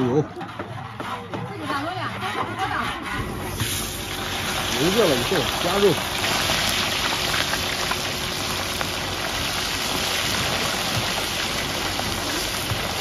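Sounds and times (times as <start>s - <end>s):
meat sizzling in hot oil: 3.2s - 13.0s.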